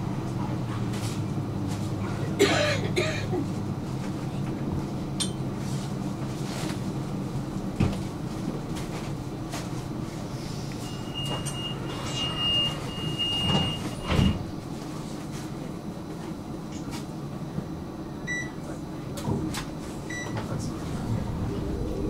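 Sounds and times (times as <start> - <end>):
tram interior hum: 0.0 - 22.0
sliding doors thumping shut: 13.4 - 14.5.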